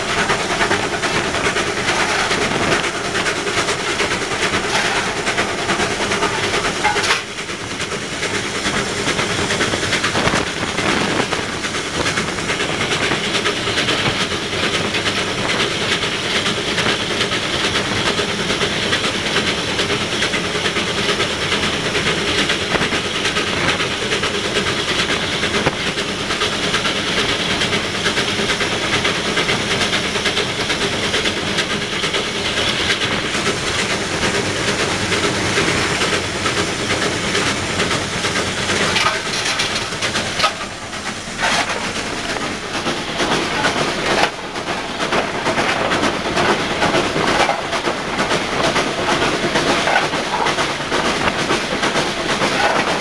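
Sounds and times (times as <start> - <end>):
steam locomotive running: 0.0 - 53.0.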